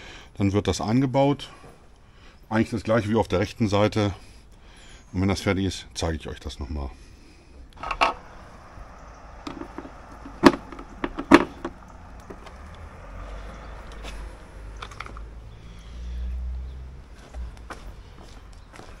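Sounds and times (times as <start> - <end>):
low rumble: 7.8 - 14.4.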